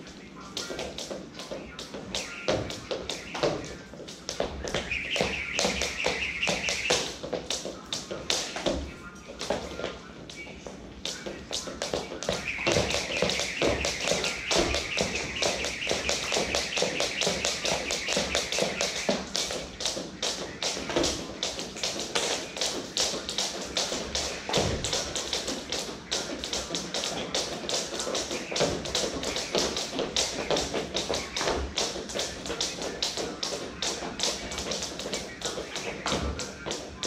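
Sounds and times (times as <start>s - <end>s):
skipping ropes slapping floor: 0.0s - 10.0s, 10.8s - 37.0s
feet landing: 10.7s - 36.4s.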